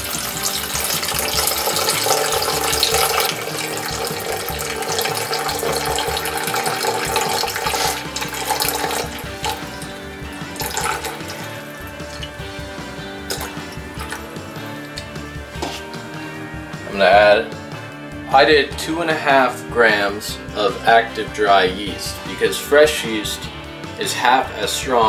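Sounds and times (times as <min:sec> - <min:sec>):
water pouring into container: 0:00.0 - 0:15.2.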